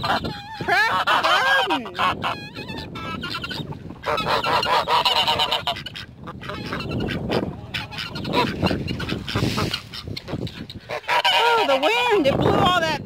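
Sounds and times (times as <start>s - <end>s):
geese honking: 0.0s - 12.8s
wind on microphone: 0.0s - 13.0s.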